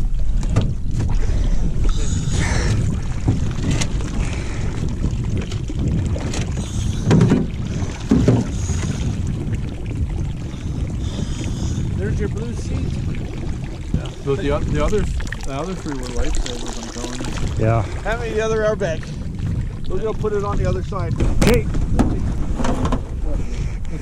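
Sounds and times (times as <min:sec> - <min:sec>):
water splashing around boats: 0:00.0 - 0:24.0
wind rumbling on microphone: 0:00.0 - 0:24.0
dull knocks: 0:06.2 - 0:08.6, 0:20.5 - 0:23.1.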